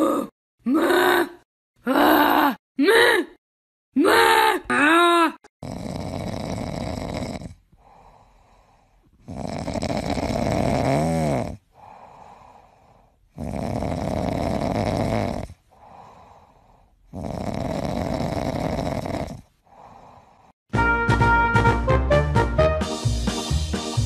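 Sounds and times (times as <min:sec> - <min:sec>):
cat snoring loudly: 0:05.6 - 0:20.6
cat breathing quietly: 0:11.7 - 0:13.2.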